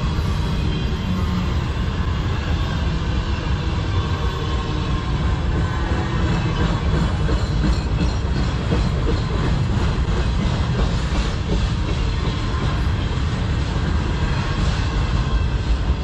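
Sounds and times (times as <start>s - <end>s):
train wheels rumbling on rails: 0.0s - 16.0s
wheels clacking over rail joints: 5.4s - 14.0s.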